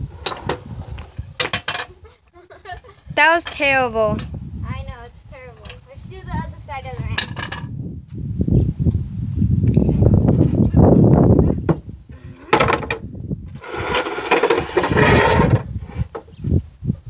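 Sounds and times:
wooden ramp scraping concrete: 0.0 - 2.1, 12.2 - 16.4.

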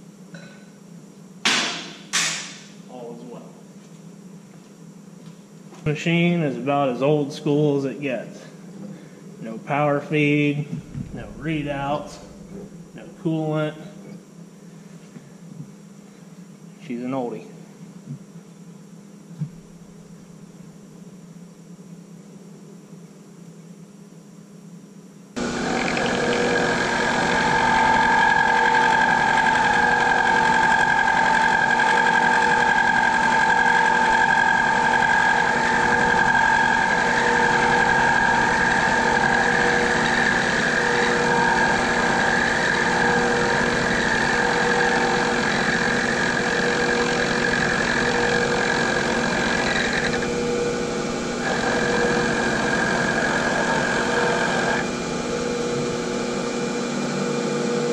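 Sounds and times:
milling machine motor running: 10.7 - 13.2, 25.4 - 57.9
high-pitched cutting whine: 10.7 - 13.6, 25.4 - 57.2.

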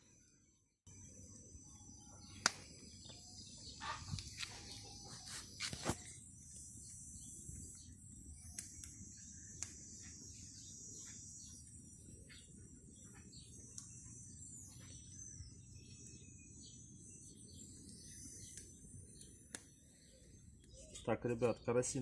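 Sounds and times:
birds chirping: 0.0 - 22.0
insects chirping: 0.0 - 22.0
kindling crackling and popping: 2.4 - 3.2, 5.6 - 10.1, 17.3 - 20.8.

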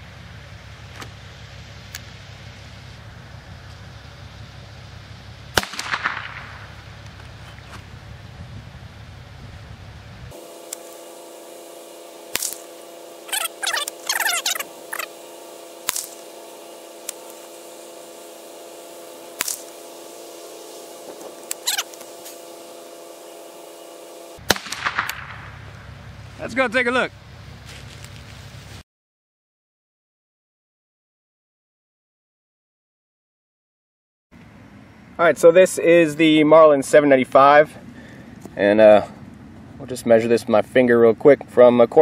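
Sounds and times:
steady machine hum: 0.0 - 28.8, 34.4 - 42.0
gunshot crack: 5.5 - 6.7, 24.4 - 25.6
shotgun clicks: 24.5 - 25.3.

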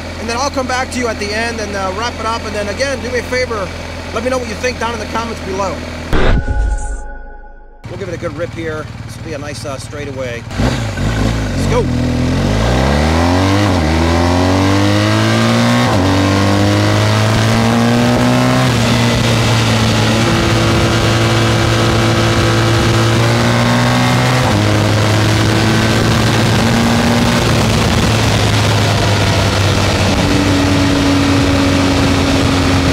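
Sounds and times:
motorcycle engine accelerating: 10.4 - 32.9.

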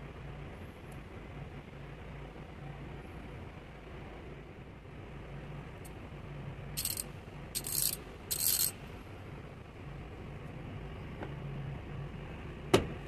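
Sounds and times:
ratchet clicking: 6.8 - 7.0, 7.6 - 8.7.

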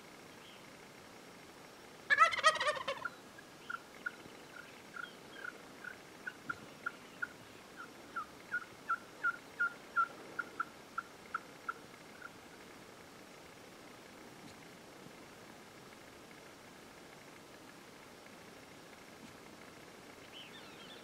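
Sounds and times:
turkey gobbling: 2.1 - 12.4.

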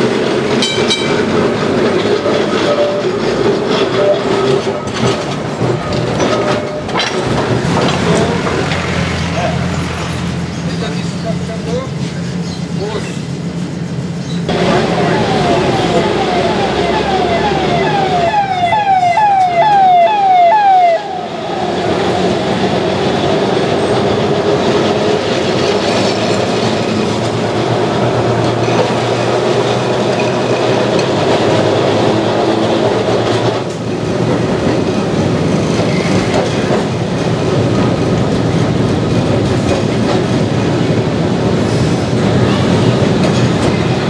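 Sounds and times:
tram wheels rumbling on rail: 0.0 - 44.0
electronic siren whooping: 14.5 - 22.0.

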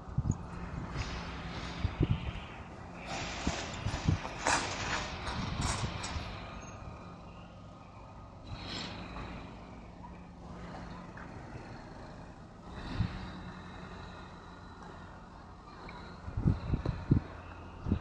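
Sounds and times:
low engine hum: 0.0 - 18.0.

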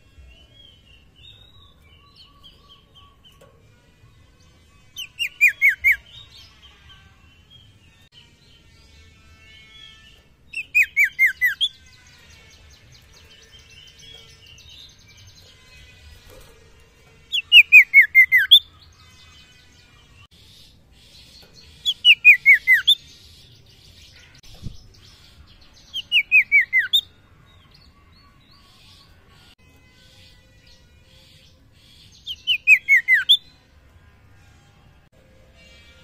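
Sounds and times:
bird calling with whistled notes: 4.9 - 6.3, 9.9 - 11.8, 17.3 - 18.8, 21.8 - 23.1, 24.2 - 27.1, 31.8 - 33.4.

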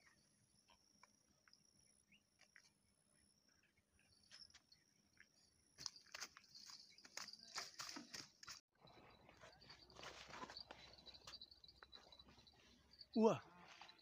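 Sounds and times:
crackling rustles in dry grass: 5.8 - 8.6
high insect trill: 10.0 - 14.0.

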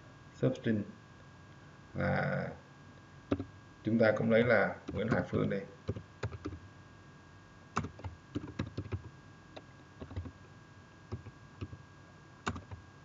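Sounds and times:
keyboard key clicks: 7.8 - 10.3, 12.5 - 12.8.

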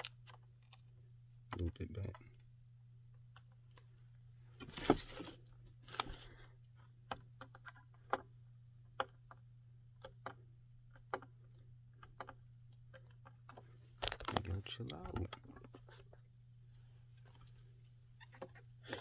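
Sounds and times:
fingernails clicking on plastic: 6.9 - 15.7.

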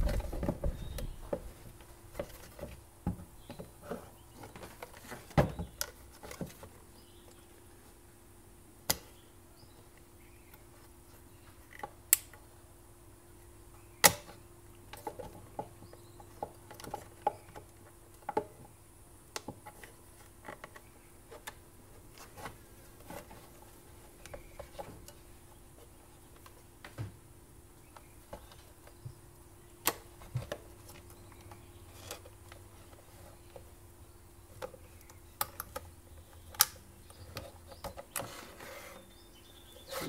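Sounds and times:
faint steady hum: 0.0 - 40.0
plastic parts clicking: 34.5 - 38.4.

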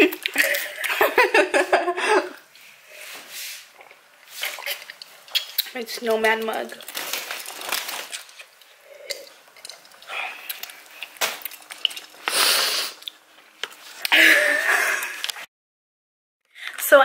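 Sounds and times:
person sipping and exhaling: 11.8 - 13.2.

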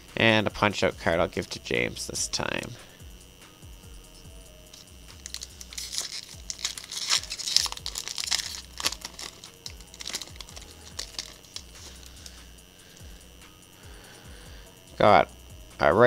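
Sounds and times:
sharp crack of foil: 4.8 - 12.4
foil wrapper tearing and crinkling: 5.2 - 12.3.

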